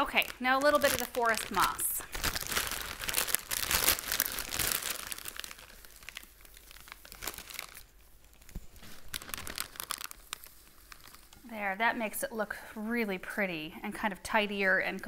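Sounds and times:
plastic bag crinkling: 0.0 - 11.6
dried moss being pulled apart: 0.6 - 11.5.

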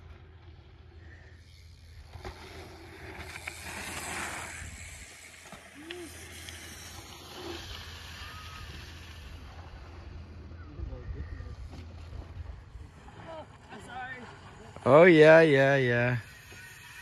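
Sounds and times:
bike riding over dirt: 0.0 - 17.0.

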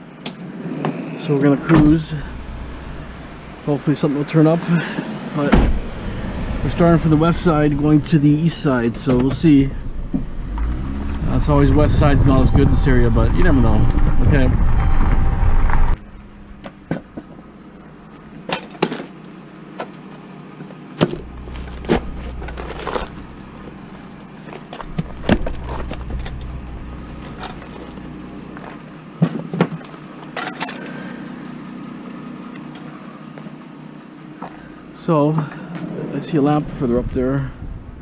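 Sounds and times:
road rumble: 0.0 - 38.0.

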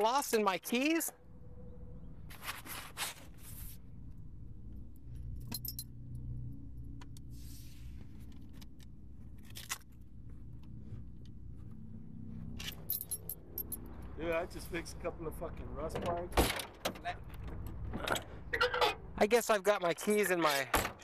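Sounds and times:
keys jangling: 5.3 - 5.9, 12.6 - 14.0.

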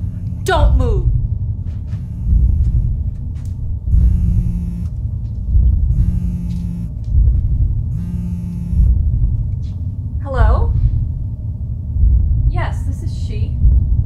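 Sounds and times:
harsh buzzing tone: 0.0 - 9.4
deep rumbling drone: 0.0 - 14.0.

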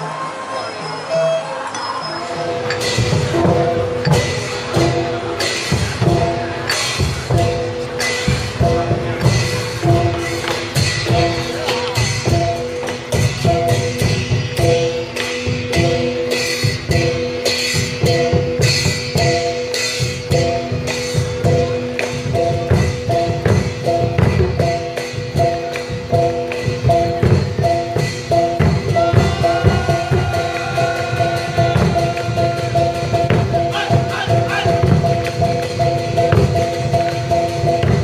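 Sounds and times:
ringing tones: 0.5 - 5.2
drums and metal percussion: 1.2 - 38.0.

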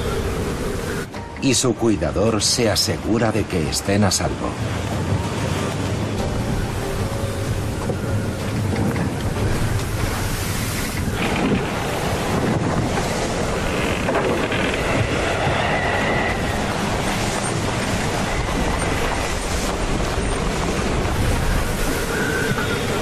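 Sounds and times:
wind buffeting microphone: 0.0 - 1.4, 3.0 - 23.0
waves breaking: 0.0 - 23.0.

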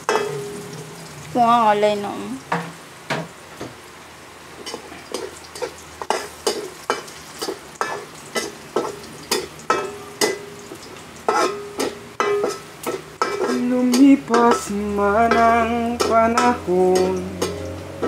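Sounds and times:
metal spatula scraping wok: 0.0 - 1.1, 11.2 - 18.0
food sizzling in oil: 0.0 - 18.0.

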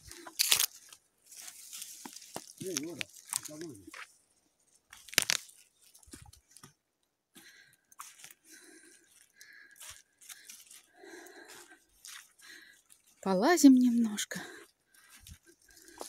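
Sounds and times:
footsteps crunching through dry leaves: 0.0 - 4.2, 4.8 - 6.6, 8.0 - 13.4, 15.0 - 16.0.

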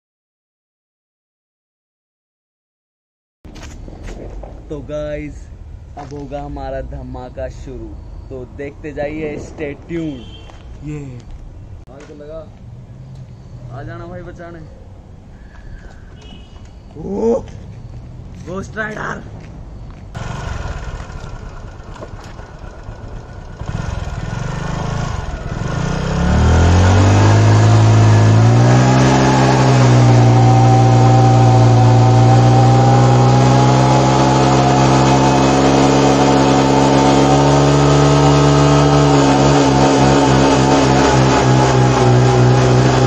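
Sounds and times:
motorcycle engine revving: 20.2 - 43.0
tyre spinning in a burnout: 26.4 - 43.0.

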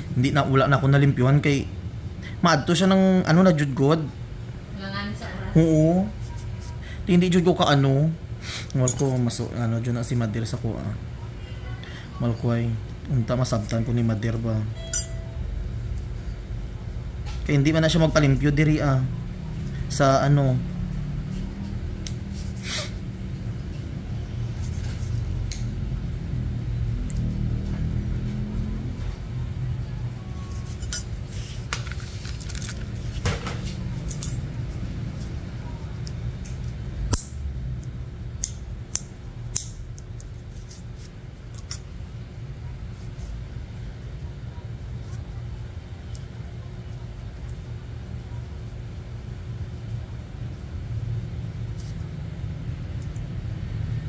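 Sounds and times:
steady low hum: 0.0 - 54.0
nail clipper snipping toenail: 38.4 - 40.4.

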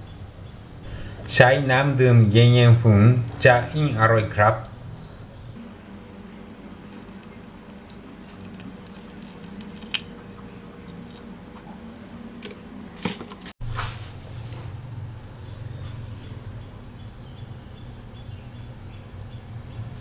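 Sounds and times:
water trickling onto rice: 4.4 - 11.4.

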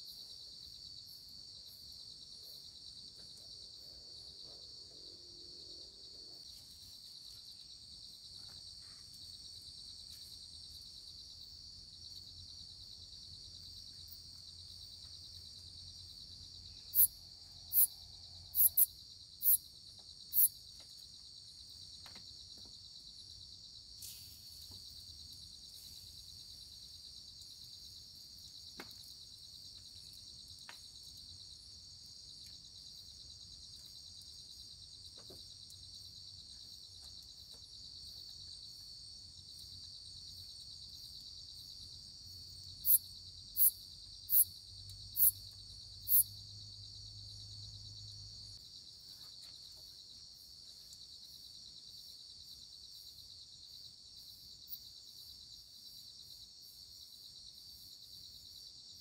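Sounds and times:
crickets and insects trilling: 10.7 - 19.7, 20.3 - 58.7.

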